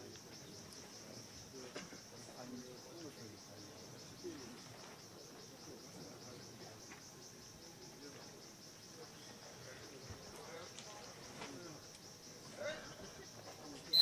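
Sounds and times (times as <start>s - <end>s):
faint distant voices: 0.0s - 14.0s
insects trilling: 0.0s - 14.0s.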